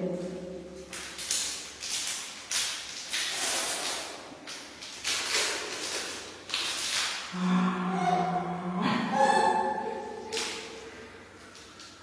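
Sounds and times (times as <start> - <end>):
plastic packet crinkling: 0.8 - 7.3.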